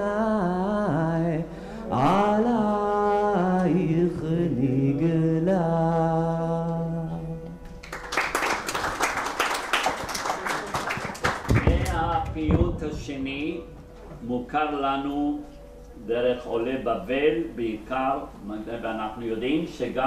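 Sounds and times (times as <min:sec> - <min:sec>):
man singing unaccompanied: 0:00.0 - 0:07.6
audience applause: 0:07.8 - 0:12.4.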